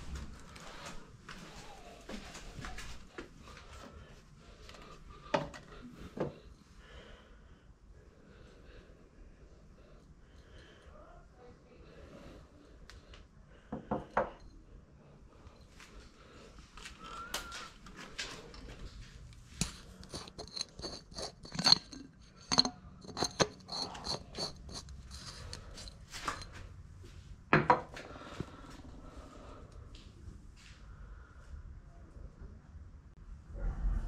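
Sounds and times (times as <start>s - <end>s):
glass and metal items clinking: 19.6s - 26.6s.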